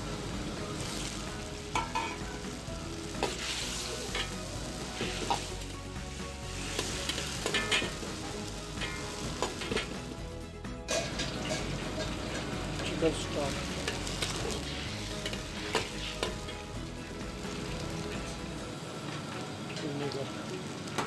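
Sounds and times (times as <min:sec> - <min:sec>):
chicken sizzling in a wok: 0:00.0 - 0:21.0
metal ladle scraping a wok: 0:01.8 - 0:02.4, 0:03.2 - 0:05.6, 0:06.6 - 0:08.2, 0:08.8 - 0:10.1, 0:10.9 - 0:12.6.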